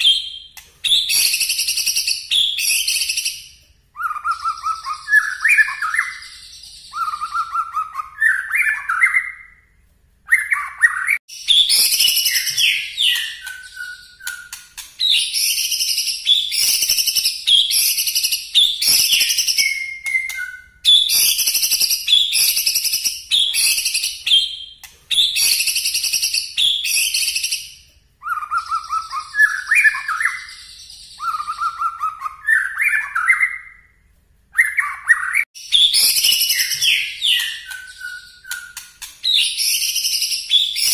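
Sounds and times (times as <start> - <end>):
songbird singing loud volleys: 0.0 - 40.9
low whistled bird phrases: 10.3 - 27.5, 34.6 - 40.9.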